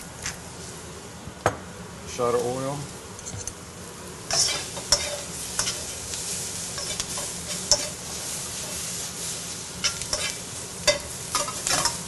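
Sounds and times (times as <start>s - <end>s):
vegetables sizzling in oil: 0.0s - 12.0s
metal utensil clicking on pan: 4.3s - 5.9s, 6.8s - 8.0s, 9.8s - 12.0s.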